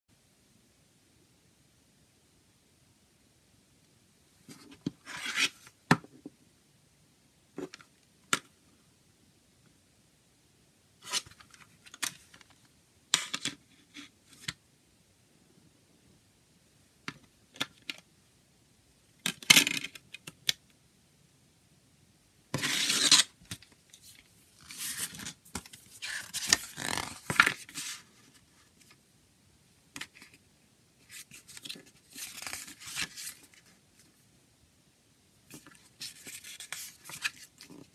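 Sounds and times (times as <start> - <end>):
paper rustling: 24.0 - 28.9, 35.5 - 37.9.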